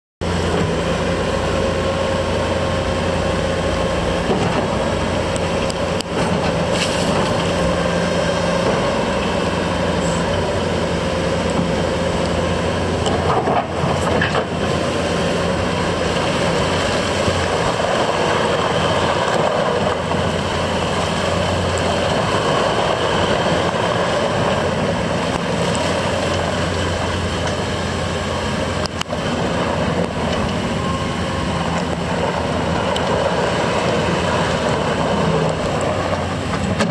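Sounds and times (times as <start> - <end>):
loader diesel engine running: 0.2 - 36.9.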